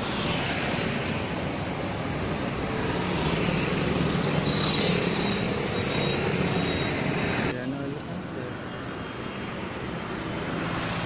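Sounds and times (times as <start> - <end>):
road traffic hum: 0.0 - 11.0.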